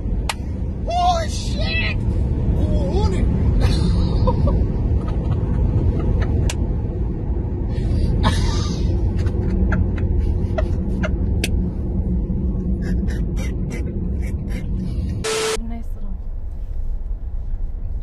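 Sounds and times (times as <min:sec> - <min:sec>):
road and wind rumble in car: 0:00.0 - 0:18.0
person laughing: 0:03.6 - 0:06.4.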